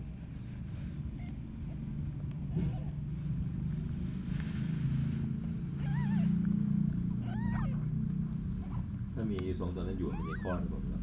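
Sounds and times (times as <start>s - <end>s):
kittens mewing: 0.9s - 3.8s, 5.2s - 11.0s.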